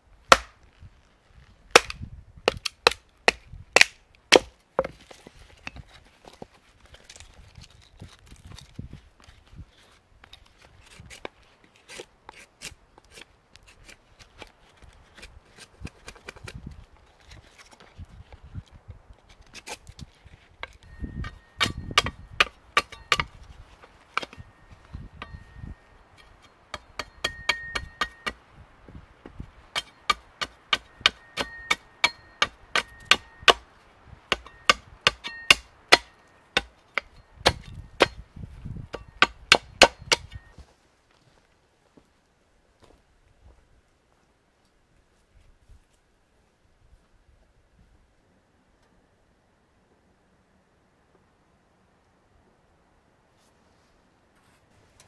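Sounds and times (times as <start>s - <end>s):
hatchet chopping kindling: 0.3s - 0.6s, 1.7s - 5.0s, 20.6s - 23.4s, 26.2s - 28.4s, 29.7s - 33.7s, 34.3s - 38.2s, 38.9s - 40.5s.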